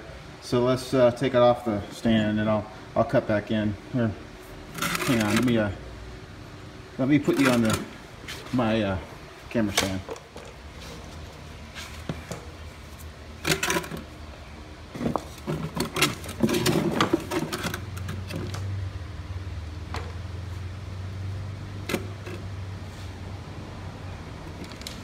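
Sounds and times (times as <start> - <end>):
steady low hum: 0.0 - 25.0
knocks and rattles on a mower: 15.0 - 18.6.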